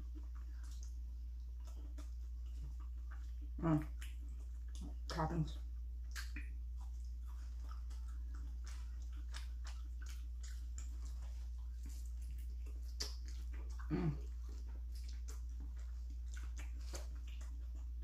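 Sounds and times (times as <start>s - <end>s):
person chewing: 0.0s - 18.0s
steady low hum: 0.0s - 18.0s
person humming mm: 13.8s - 14.3s.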